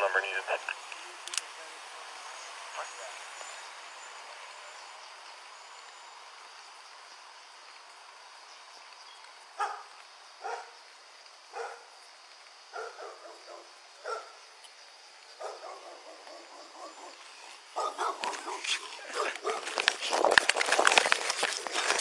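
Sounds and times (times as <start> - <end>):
dog barking: 9.6 - 10.8, 11.5 - 11.9, 12.7 - 14.4, 15.4 - 19.8.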